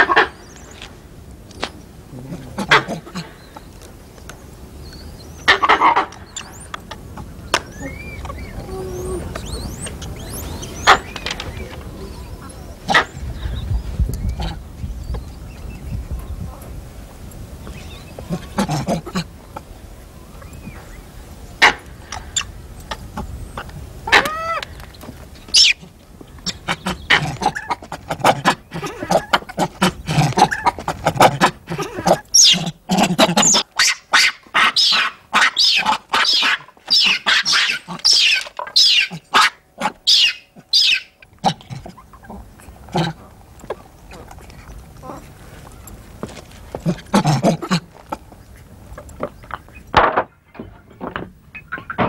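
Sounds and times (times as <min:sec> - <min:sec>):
monkeys screeching: 0:07.5 - 0:13.2, 0:24.0 - 0:24.6, 0:25.5 - 0:42.4.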